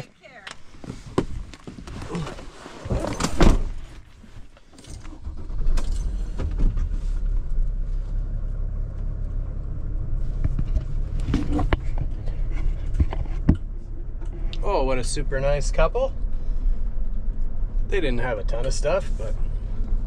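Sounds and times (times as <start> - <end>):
van door slamming shut: 3.0 - 3.8
engine starting and idling: 4.8 - 12.2.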